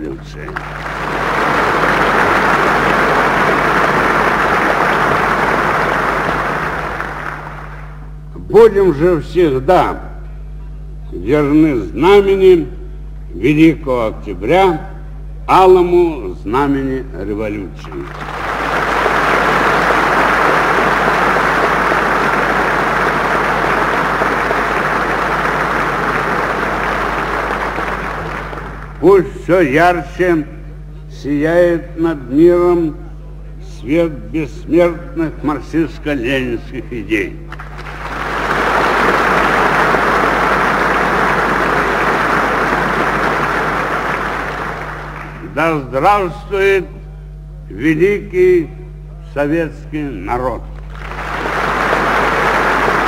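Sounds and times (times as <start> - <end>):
audience applauding: 0.4 - 8.0, 18.0 - 29.0, 37.5 - 45.4, 50.8 - 53.0.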